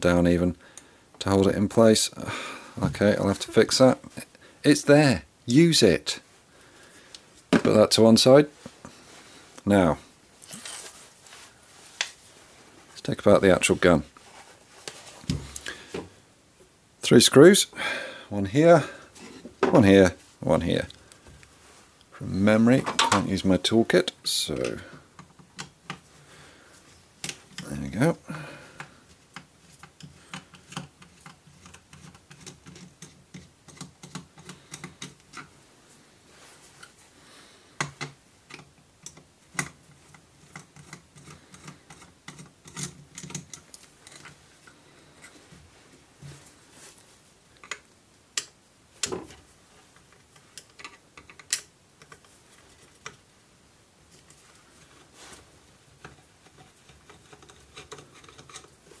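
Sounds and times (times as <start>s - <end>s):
screwdriver metal clicks and scrapes: 37.8s - 44.4s, 50.0s - 53.2s, 56.0s - 59.0s.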